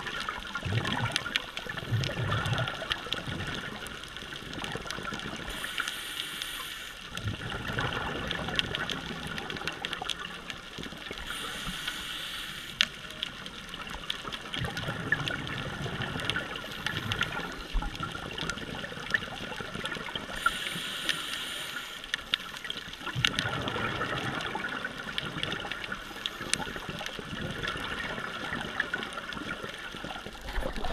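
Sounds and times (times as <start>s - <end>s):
bubbling exhaled air: 0.0s - 10.0s, 14.5s - 21.7s, 22.7s - 30.9s
crackle of clicks underwater: 0.0s - 30.9s
scuba regulator hissing inhale: 5.5s - 7.0s, 11.2s - 12.8s, 20.4s - 22.1s.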